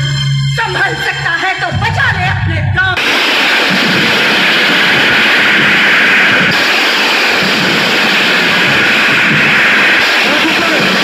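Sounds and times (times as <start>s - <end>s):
music: 0.0s - 3.0s
rushing noise from loudspeakers: 3.0s - 11.0s.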